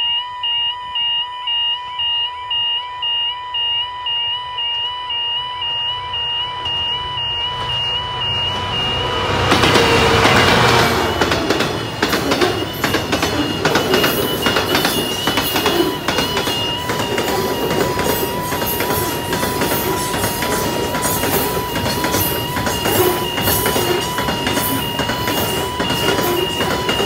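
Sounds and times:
warbling level crossing alarm: 0.0s - 27.0s
diesel locomotive passing: 5.5s - 27.0s
train wheels clattering over rail joints: 9.3s - 27.0s.

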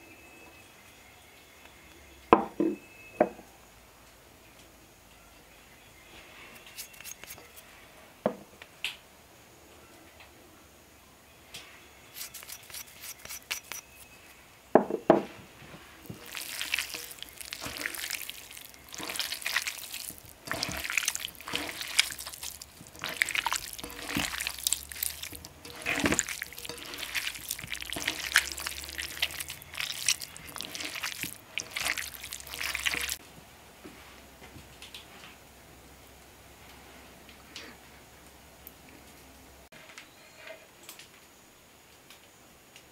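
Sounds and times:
wet squelching of minced meat: 15.8s - 33.2s.

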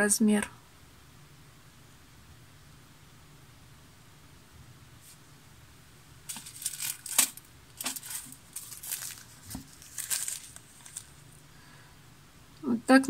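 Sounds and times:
plastic packet crinkling: 6.3s - 11.4s.

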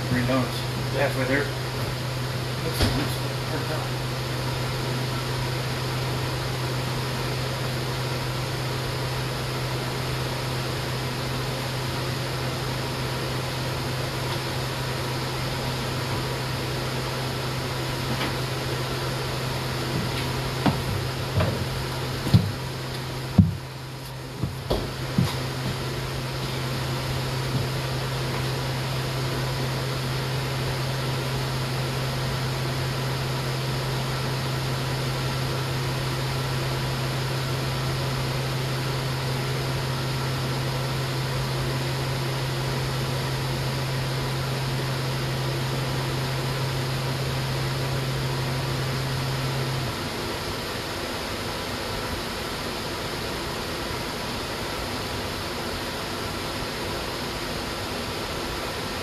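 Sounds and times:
low even hum: 0.0s - 59.0s.

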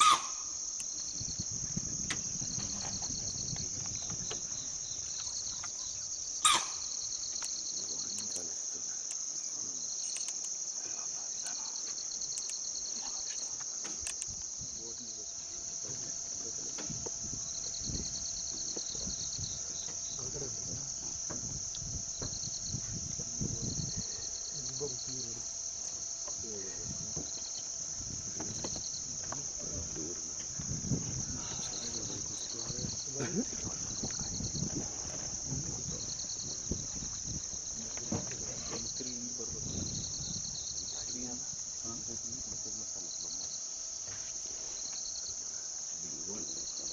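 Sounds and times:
insect chorus drone: 0.0s - 46.9s
sharp click: 10.1s - 10.5s
low thuds: 15.8s - 41.3s.

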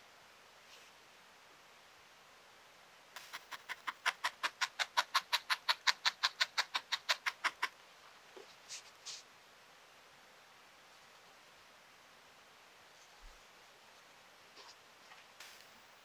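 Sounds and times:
fingers brushing wool: 8.4s - 9.3s.

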